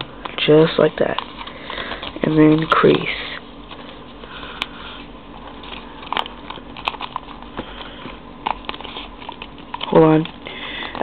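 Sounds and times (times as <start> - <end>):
paper crackling: 0.0 - 4.7, 5.4 - 11.0
paper being folded and creased: 1.2 - 4.0.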